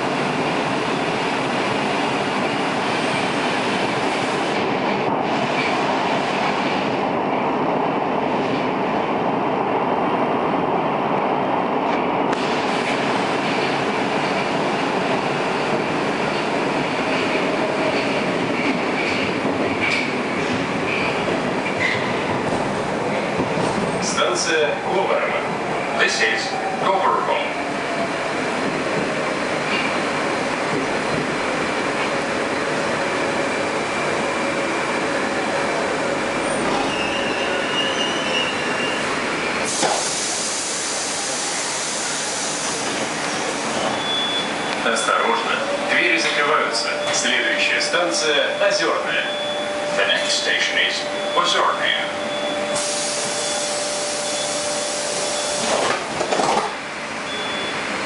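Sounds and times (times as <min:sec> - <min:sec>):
train wheels rumbling on rails: 0:00.0 - 0:58.0
train doors clunk: 0:17.1 - 0:22.7, 0:39.6 - 0:40.3, 0:55.2 - 0:56.8
train brake squeal: 0:36.5 - 0:40.4, 0:43.8 - 0:44.7, 0:49.2 - 0:55.8.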